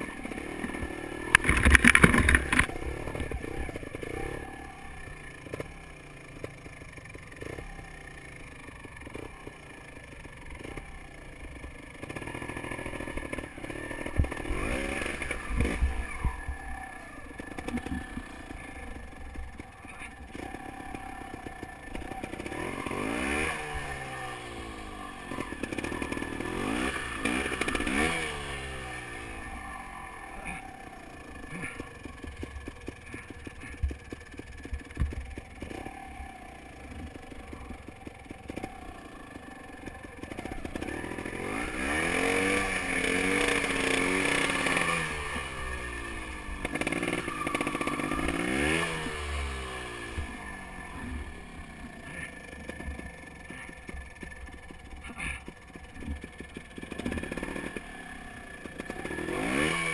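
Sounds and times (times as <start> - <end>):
knocks and clatter on rough track: 0.0 - 4.6, 11.6 - 16.7, 17.3 - 23.5, 31.4 - 39.1, 49.9 - 59.7
motorcycle engine revving: 0.0 - 59.9.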